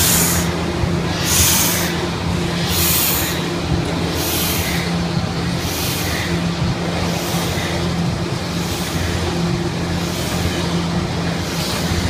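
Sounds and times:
air hissing: 0.0s - 5.0s
power press motor hum: 0.0s - 12.0s.

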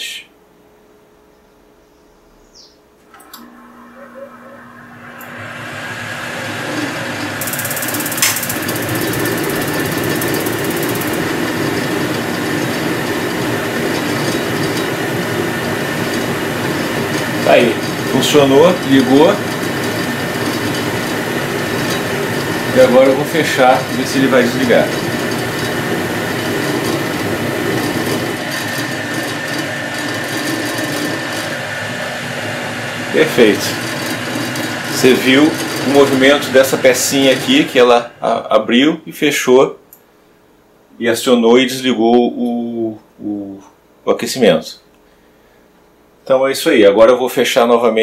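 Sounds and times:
gas water heater rushing: 3.0s - 38.9s
spark igniter ticking: 7.4s - 15.0s.

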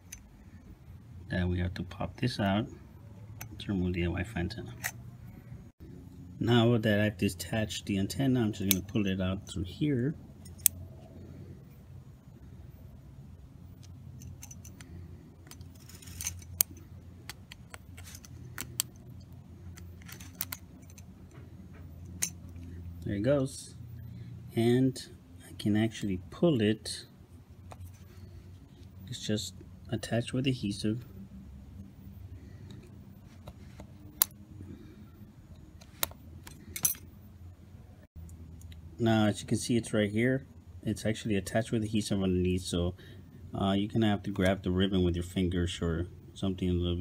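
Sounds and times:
metal tweezers clicking and scraping: 0.0s - 0.3s, 4.7s - 5.0s, 10.4s - 10.8s, 13.8s - 21.4s, 22.0s - 22.8s
steady low hum: 0.0s - 47.0s.

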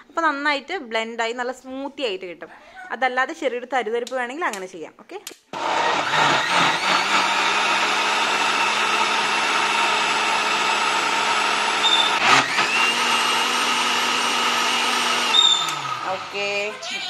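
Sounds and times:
mixer grinder motor whirring: 5.5s - 17.0s.

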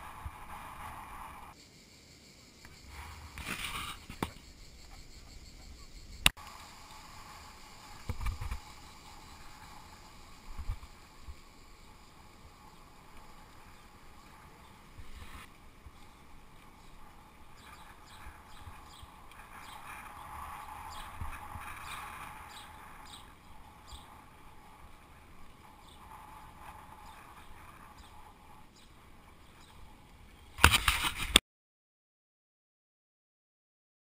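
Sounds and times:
bicycle tyre noise: 0.0s - 1.6s, 6.3s - 31.4s.

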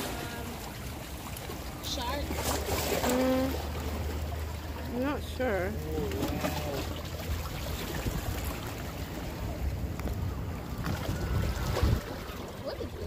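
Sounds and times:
sea water lapping over rocks: 0.0s - 13.0s
wind rumbling on microphone: 7.3s - 13.0s.

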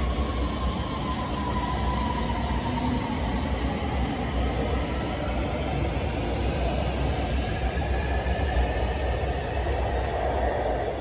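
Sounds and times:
metro train rumbling: 0.0s - 11.0s.

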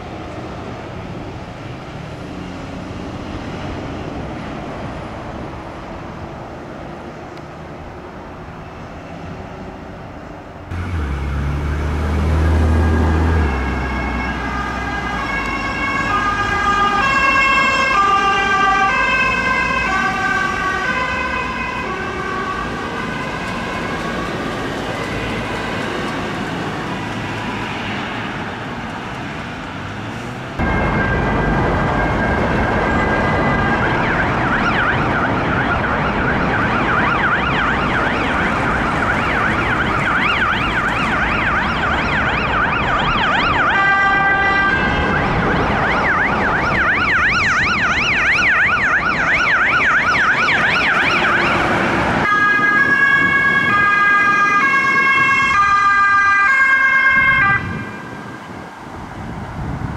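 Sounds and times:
traffic noise: 0.0s - 59.9s
police siren warbling: 10.7s - 26.1s, 30.6s - 58.3s
ambulance siren stepped tones: 10.7s - 26.2s, 30.6s - 57.9s.

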